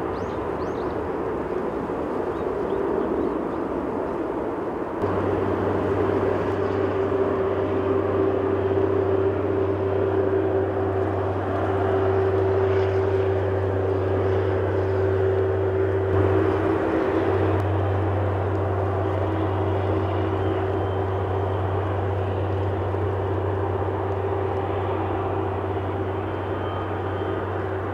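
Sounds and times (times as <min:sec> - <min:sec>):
jet engines rushing: 0:00.0 - 0:27.9
steady low hum: 0:03.8 - 0:27.9.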